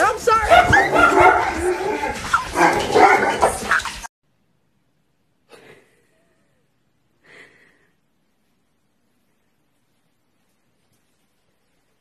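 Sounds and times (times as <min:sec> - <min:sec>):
person's excited raised voice: 0:00.0 - 0:01.2.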